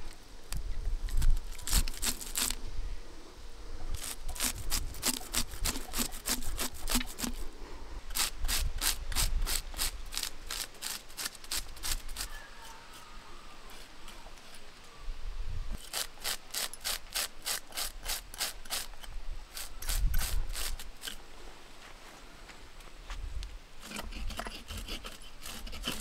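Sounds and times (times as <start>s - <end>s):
knife scraping fish scales: 1.2s - 2.6s, 4.0s - 7.4s, 15.8s - 21.2s, 23.8s - 26.0s.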